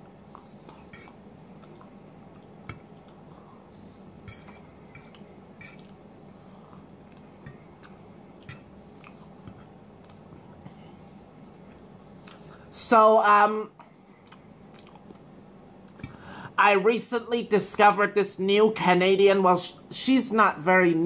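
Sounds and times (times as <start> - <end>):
fork clinking and scraping on plate: 0.9 - 1.2, 4.2 - 5.9.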